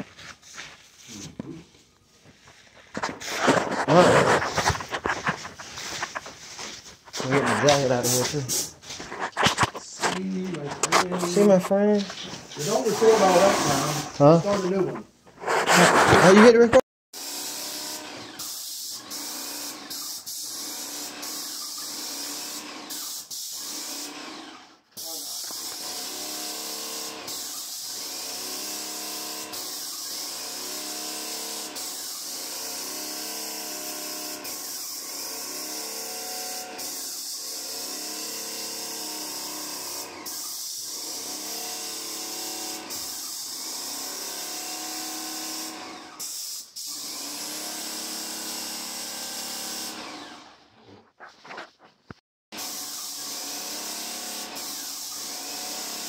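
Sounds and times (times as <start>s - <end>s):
paint sprayer hissing: 2.9s - 9.4s, 11.1s - 14.6s, 18.4s - 24.1s, 25.0s - 26.1s, 26.9s - 28.0s, 28.6s - 35.0s, 36.5s - 38.6s, 39.4s - 40.8s, 46.2s - 47.0s, 52.6s - 56.0s.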